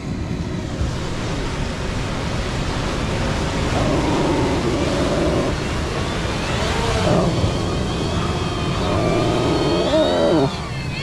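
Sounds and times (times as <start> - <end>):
wind noise on microphone: 0.0 - 11.0
drone propellers whining: 3.8 - 11.0.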